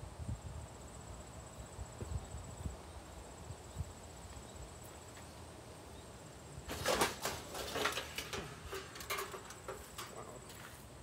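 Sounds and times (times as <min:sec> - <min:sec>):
hard objects clattering: 0:06.7 - 0:10.7.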